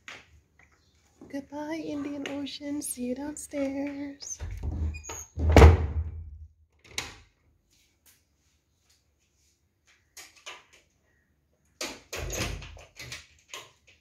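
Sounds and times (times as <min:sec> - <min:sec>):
wooden door knocking shut: 0:04.4 - 0:06.2.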